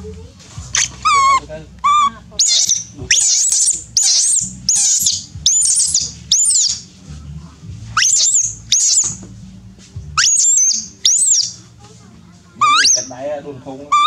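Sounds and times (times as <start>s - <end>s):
baby monkey crying: 0.8s - 6.8s, 8.0s - 9.1s, 10.2s - 11.6s, 12.6s - 13.1s.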